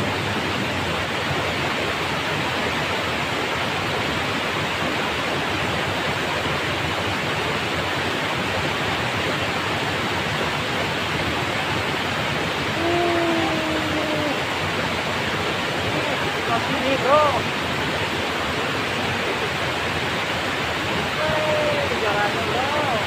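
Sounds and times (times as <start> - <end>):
water pouring down cascade: 0.0 - 23.0.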